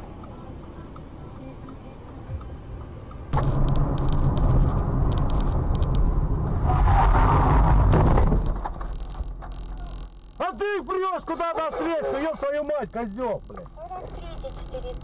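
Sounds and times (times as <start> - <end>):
car engine: 0.0 - 15.0
road noise: 0.0 - 15.0
sharp clicks: 0.2 - 6.1, 8.4 - 10.4.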